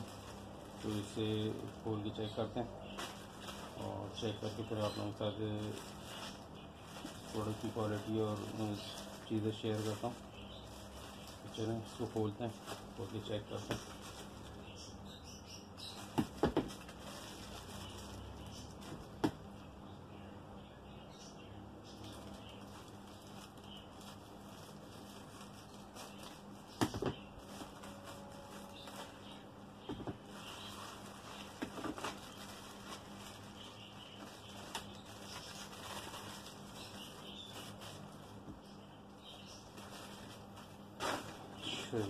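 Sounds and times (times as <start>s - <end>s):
scissors cutting plastic bag: 0.0s - 14.6s, 30.4s - 38.2s
plastic packets handled: 0.0s - 19.6s, 21.8s - 42.0s.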